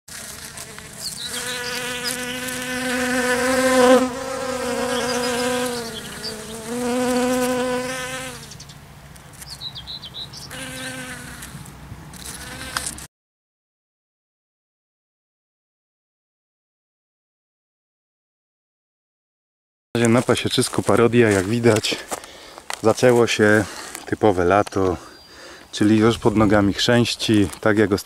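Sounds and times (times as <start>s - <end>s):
honeybees buzzing: 0.1s - 8.6s, 9.6s - 13.1s.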